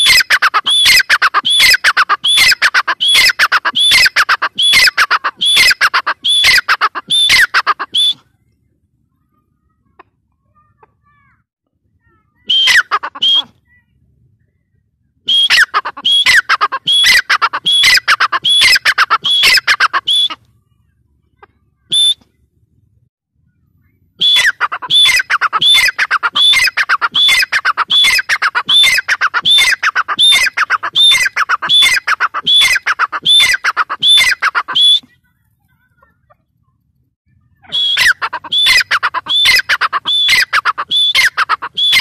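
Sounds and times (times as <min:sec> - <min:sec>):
francolin calling shrill notes: 0:37.6 - 0:42.0.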